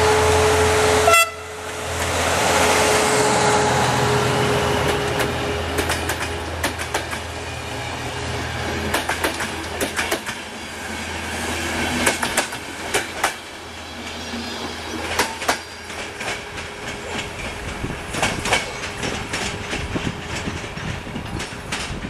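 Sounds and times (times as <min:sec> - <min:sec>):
train rumble: 0:00.0 - 0:22.0
train wheels clacking over rail joints: 0:04.7 - 0:07.6, 0:08.5 - 0:22.0.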